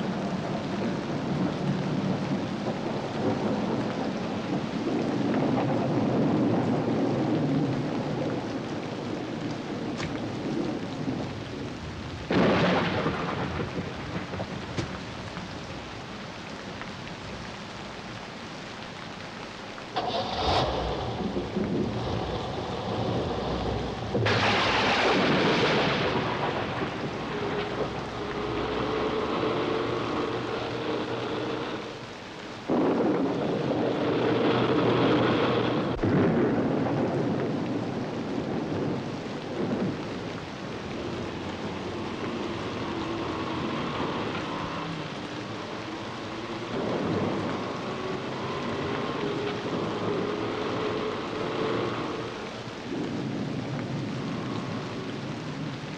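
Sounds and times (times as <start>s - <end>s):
thunderclaps: 0.0s - 17.3s, 19.9s - 55.9s
heavy rain: 0.0s - 55.9s
sharp thunder crack: 12.3s - 15.0s, 20.0s - 28.9s, 32.7s - 39.0s.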